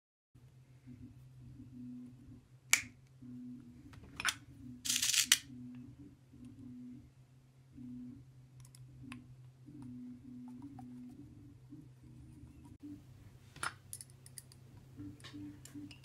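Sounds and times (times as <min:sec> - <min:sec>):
steady low hum: 0:00.4 - 0:16.0
sharp clicks of small parts: 0:04.8 - 0:05.4.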